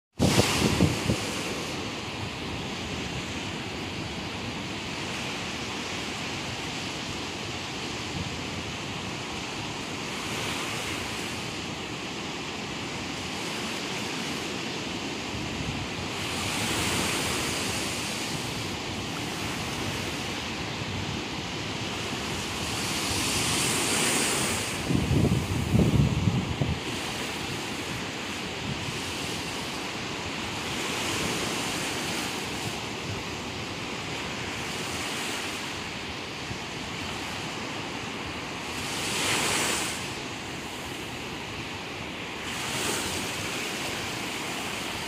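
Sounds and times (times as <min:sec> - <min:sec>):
waves breaking on rocky beach: 0:00.2 - 0:45.0.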